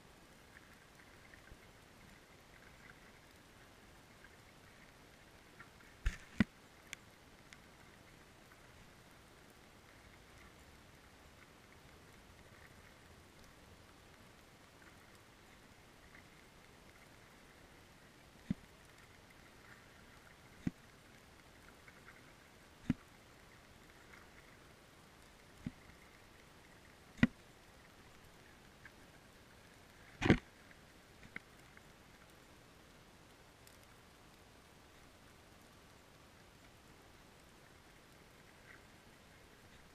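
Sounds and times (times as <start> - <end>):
sharp clicks or knocks: 30.2 - 30.4.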